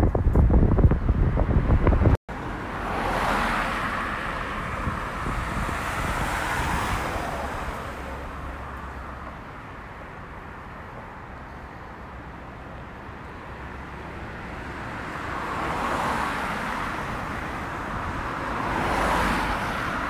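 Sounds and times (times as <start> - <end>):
wind buffeting microphone: 0.0 - 2.2, 3.6 - 8.1
car passing: 0.8 - 20.0.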